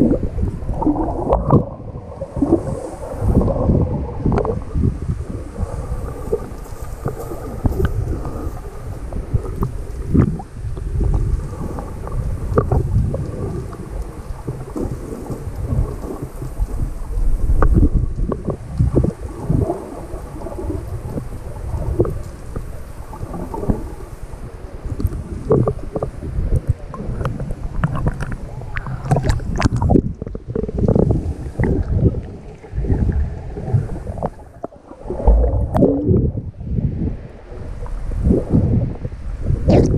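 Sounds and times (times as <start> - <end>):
underwater pops and crackles: 0.0 - 1.8, 6.3 - 8.7, 9.3 - 23.9, 24.9 - 36.4, 39.6 - 39.9
underwater rumble of moving water: 0.0 - 39.9.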